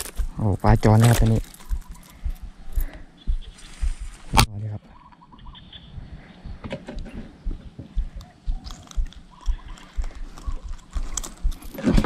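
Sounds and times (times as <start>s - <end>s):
handling clicks and rustles: 0.0s - 3.0s, 6.6s - 12.0s
low bumps: 0.0s - 4.5s, 5.4s - 12.0s.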